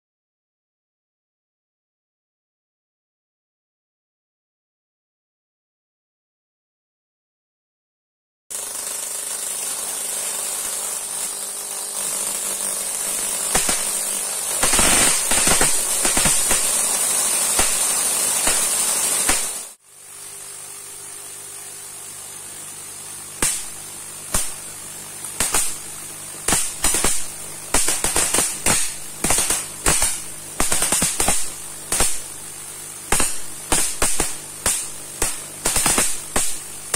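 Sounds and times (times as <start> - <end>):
sharp spark snaps: 8.5 - 19.8, 22.7 - 36.9
crackle of electric sparks: 8.5 - 36.9
steady hum and hiss: 9.0 - 36.9.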